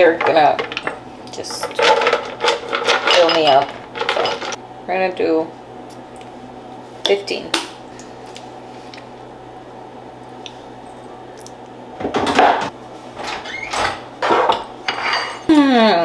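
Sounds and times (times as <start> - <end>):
kitchen things rustling and clattering: 0.0 - 4.6, 12.0 - 15.5
steady low hum: 0.0 - 16.0.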